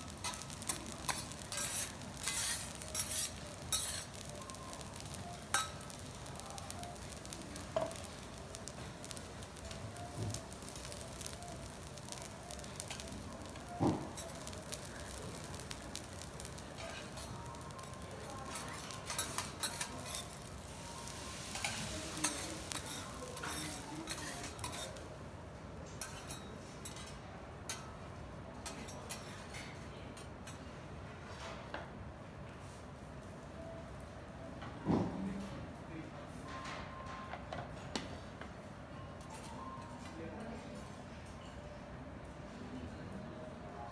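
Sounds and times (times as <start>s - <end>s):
rice sizzling on a griddle: 0.0s - 29.8s, 32.6s - 33.8s
metal spatulas scraping steel: 0.2s - 4.3s.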